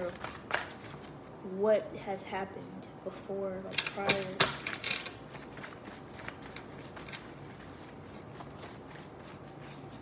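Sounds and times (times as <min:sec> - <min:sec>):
cards being shuffled: 0:00.0 - 0:01.2, 0:05.3 - 0:10.0.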